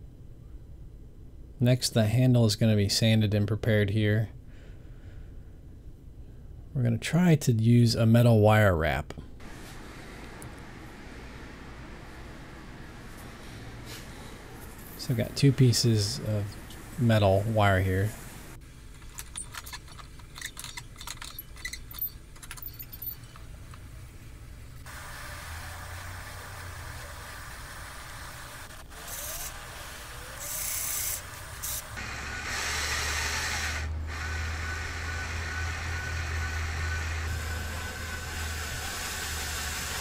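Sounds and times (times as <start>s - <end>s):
cordless drill running: 24.8s - 40.0s.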